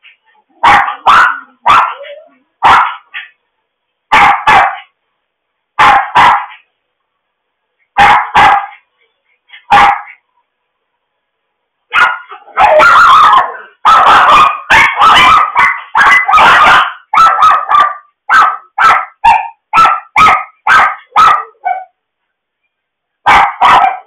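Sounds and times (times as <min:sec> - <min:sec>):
dog barking loudly: 0:00.5 - 0:03.4, 0:04.1 - 0:04.9, 0:05.8 - 0:06.6, 0:08.0 - 0:08.8, 0:09.5 - 0:10.2, 0:11.9 - 0:22.0, 0:23.2 - 0:24.0.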